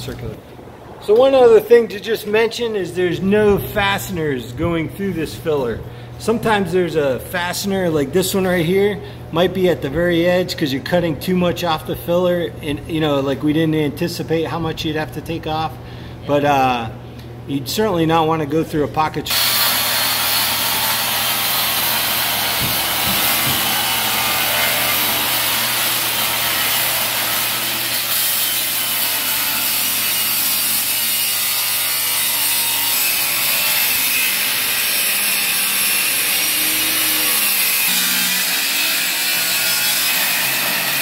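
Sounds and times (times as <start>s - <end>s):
circular saw cutting wood: 19.3s - 41.0s.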